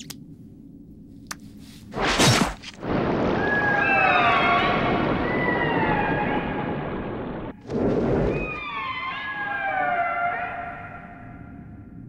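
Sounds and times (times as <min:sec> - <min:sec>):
cartoon whooshing crash: 0:02.0 - 0:05.4.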